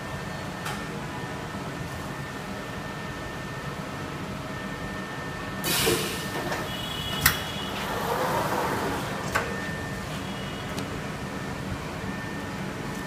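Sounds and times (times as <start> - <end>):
tray sliding along rails: 7.2 - 9.5.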